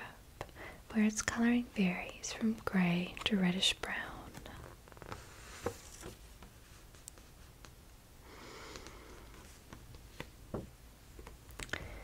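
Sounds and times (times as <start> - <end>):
faint room hiss: 0.0 - 12.0
soft breath: 0.5 - 0.9, 8.2 - 9.7, 11.7 - 12.0.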